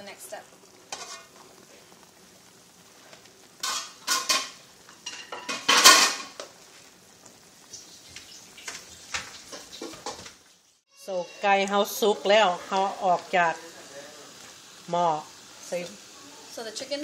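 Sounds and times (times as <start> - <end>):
metal pot clanking and scraping: 0.9 - 1.4, 3.6 - 6.4, 8.6 - 10.4.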